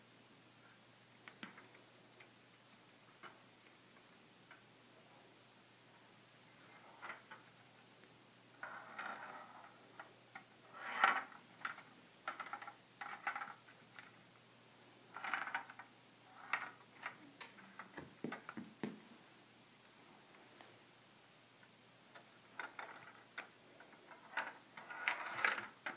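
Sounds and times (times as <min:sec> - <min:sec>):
metal ball rolling in plastic maze: 0:08.6 - 0:14.1, 0:15.1 - 0:17.2, 0:22.2 - 0:25.9.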